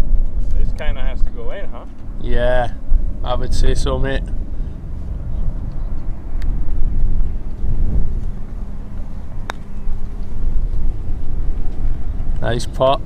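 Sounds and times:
wind rumbling on microphone: 0.0s - 13.0s
putter striking golf ball: 9.4s - 10.8s.

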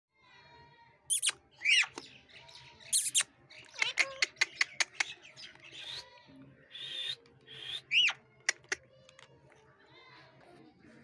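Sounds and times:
parakeet short sharp chirps: 1.1s - 2.1s, 2.9s - 6.0s
parakeets screeching: 1.1s - 8.8s.

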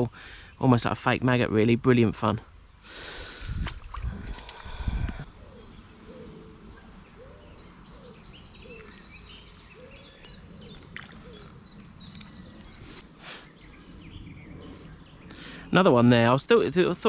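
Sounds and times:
birds singing and chirping: 0.0s - 17.0s
outdoor hush: 0.0s - 17.0s
low bird call: 3.2s - 15.8s.

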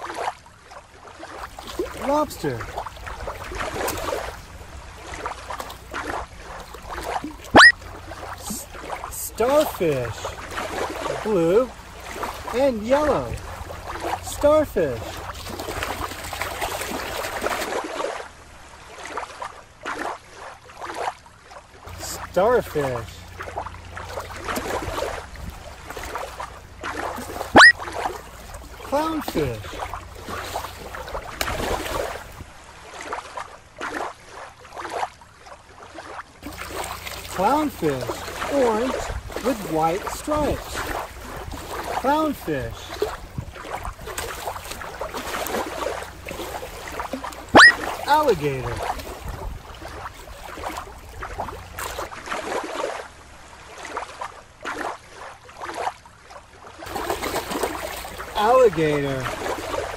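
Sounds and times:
water lapping on rocky shore: 0.0s - 59.9s
toy splashed through water: 7.0s - 7.8s, 26.9s - 28.2s, 47.0s - 49.1s.

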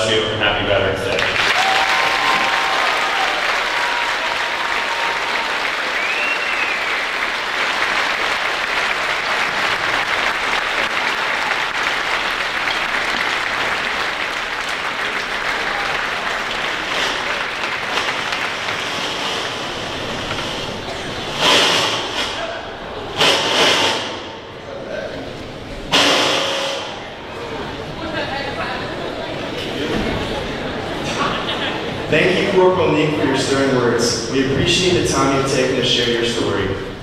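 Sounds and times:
audience applauding: 1.1s - 21.7s.

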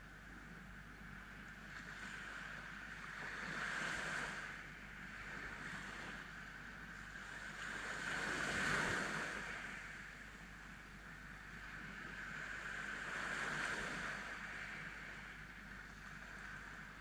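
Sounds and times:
sea waves breaking on sand: 7.3s - 10.2s, 11.6s - 15.4s.

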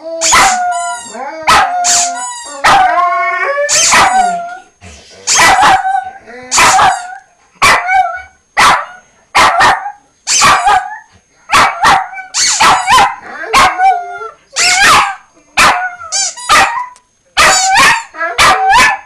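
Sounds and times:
small dog yapping: 0.2s - 0.6s, 3.7s - 4.3s, 5.3s - 5.8s, 9.6s - 10.9s, 11.8s - 13.7s, 17.4s - 19.0s.

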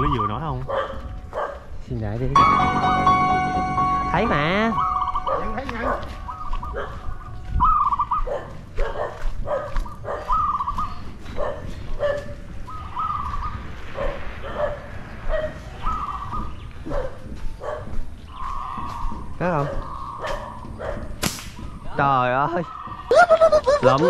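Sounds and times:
animal calling: 4.1s - 9.0s, 9.8s - 24.0s.

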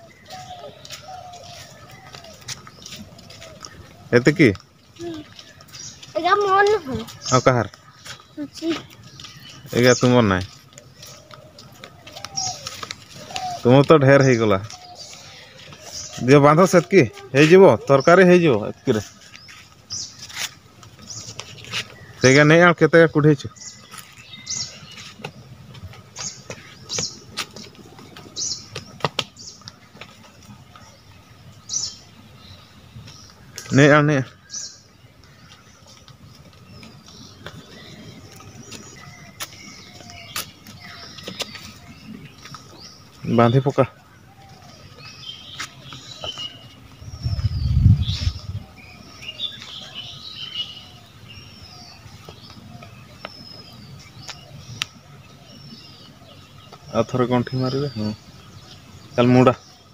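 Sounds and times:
footsteps in dry leaves: 0.0s - 22.7s, 23.4s - 57.0s
bird chirping: 0.0s - 59.9s
dry twigs rustling and clicking: 0.1s - 17.3s.

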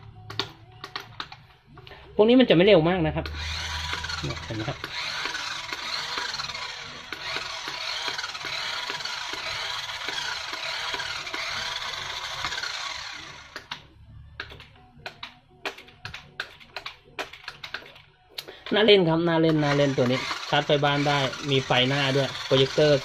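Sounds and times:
toy motor whirring: 3.2s - 13.8s, 19.4s - 23.0s.

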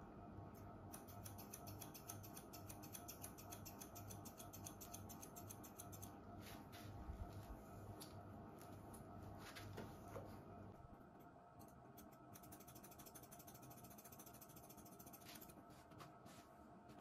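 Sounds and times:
scissors snipping hair: 0.6s - 6.2s, 11.6s - 15.5s.

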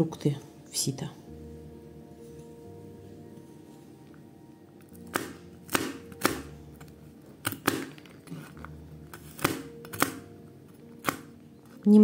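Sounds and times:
knife chopping on plastic board: 5.0s - 6.6s, 7.4s - 8.1s, 9.1s - 10.2s.

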